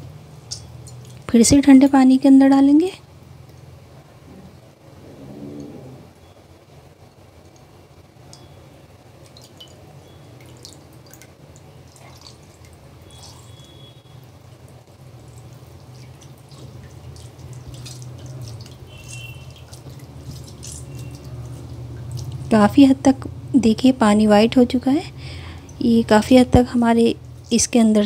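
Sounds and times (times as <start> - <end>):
steady low hum: 0.0 - 28.0
water dripping into a bowl: 0.4 - 1.3, 7.1 - 23.2.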